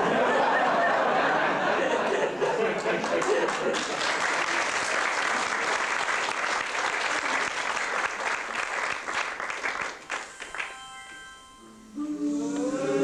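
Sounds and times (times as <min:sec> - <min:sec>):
audience applauding: 0:01.8 - 0:11.0
music chord and tune: 0:10.2 - 0:13.0.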